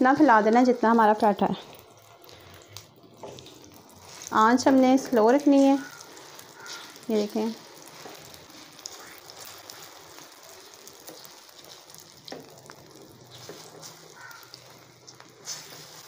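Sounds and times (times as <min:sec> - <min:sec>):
batter sizzling on a griddle: 0:00.0 - 0:16.0
steel spoon scraping a pan: 0:05.5 - 0:10.0, 0:13.3 - 0:16.0.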